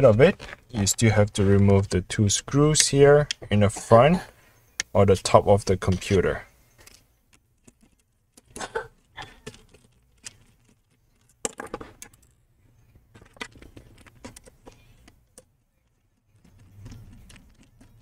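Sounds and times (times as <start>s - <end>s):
scratchy ticks: 13.5s - 18.0s.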